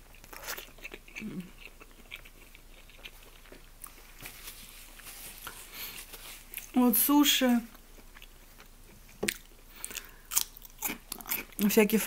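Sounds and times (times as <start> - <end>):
person chewing wetly: 0.0 - 4.0, 7.7 - 11.7.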